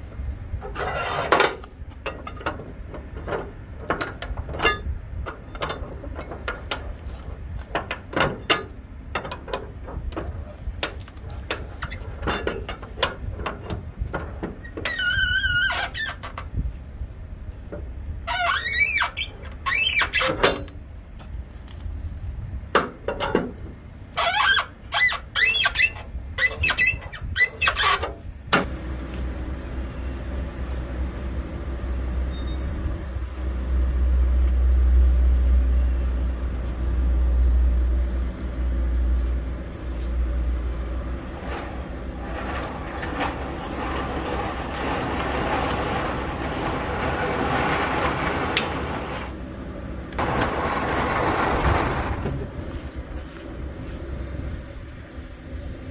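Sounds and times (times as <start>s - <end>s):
truck engine rumbling: 0.0s - 55.9s
sharp squeaks and clicks: 14.6s - 16.5s, 18.3s - 20.8s, 24.1s - 28.2s.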